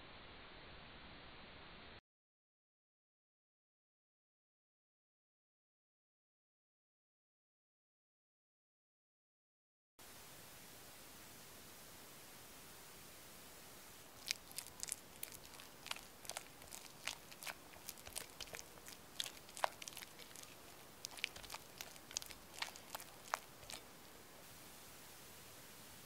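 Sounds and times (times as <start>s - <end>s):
spatula mixing in glass bowl: 14.1s - 24.1s.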